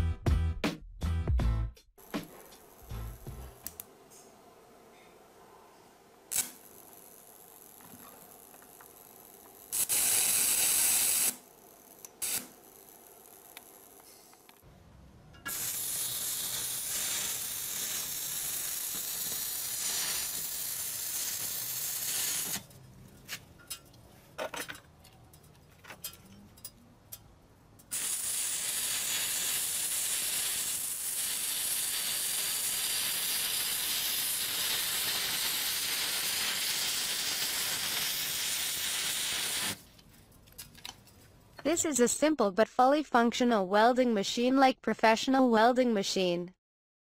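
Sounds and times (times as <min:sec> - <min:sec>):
welding arc crackling and hissing: 0:02.0 - 0:04.4, 0:06.2 - 0:14.7, 0:15.5 - 0:22.8, 0:27.8 - 0:40.0.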